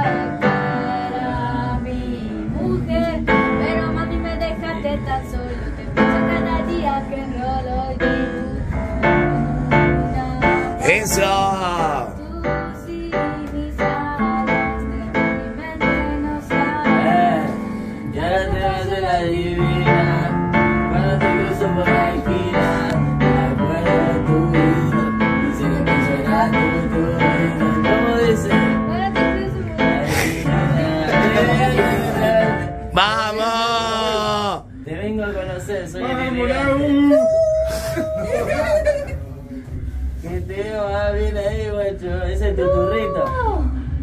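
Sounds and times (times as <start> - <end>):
boy singing: 40.8 - 43.6.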